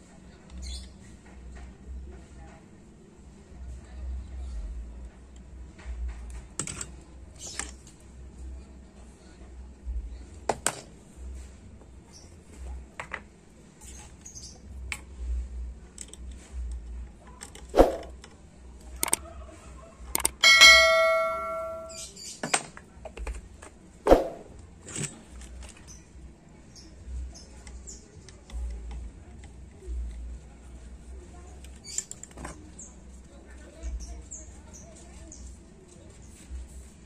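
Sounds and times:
small metal tools clicking and tapping: 0:19.0 - 0:19.2, 0:20.2 - 0:23.7, 0:31.6 - 0:32.6
metal striking metal and ringing: 0:20.4 - 0:22.1.

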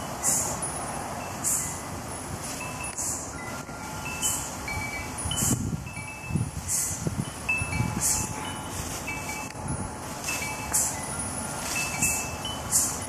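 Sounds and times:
bare feet in dry leaves: 0:00.0 - 0:05.2, 0:05.8 - 0:13.0
chimes ringing: 0:02.6 - 0:13.0.

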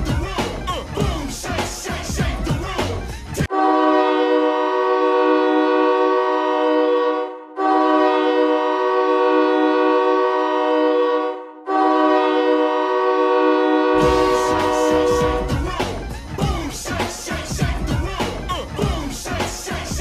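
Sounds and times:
music: 0:00.0 - 0:03.5, 0:13.9 - 0:20.0
goal horn blasts: 0:03.4 - 0:15.6.

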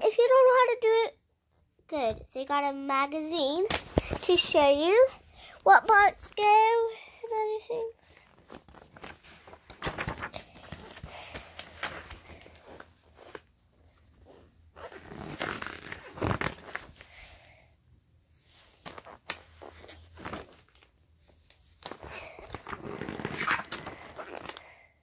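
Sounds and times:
booklet pages rustling: 0:08.2 - 0:13.5, 0:18.6 - 0:24.8.

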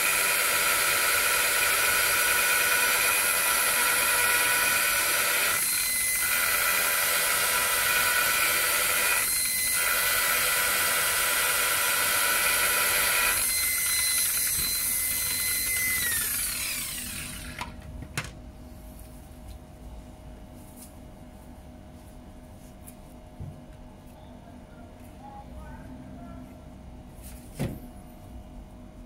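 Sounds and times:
polisher motor whining: 0:00.0 - 0:17.7.

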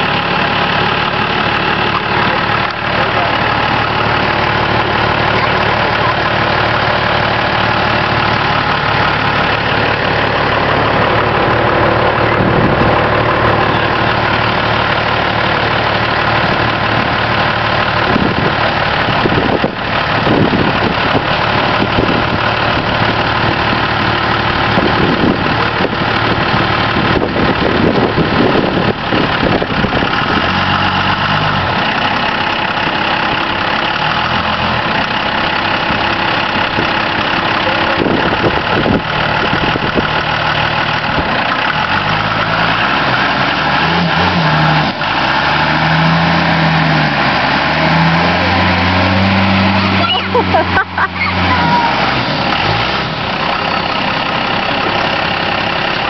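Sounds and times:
pickup truck engines running: 0:00.0 - 0:56.0.

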